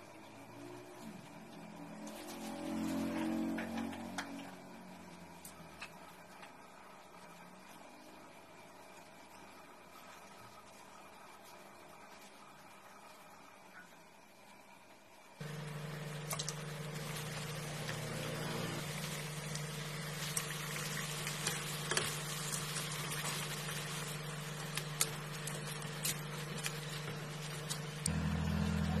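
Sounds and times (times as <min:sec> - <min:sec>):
food sizzling in hot oil: 0:15.4 - 0:28.1
low hum: 0:15.4 - 0:29.0.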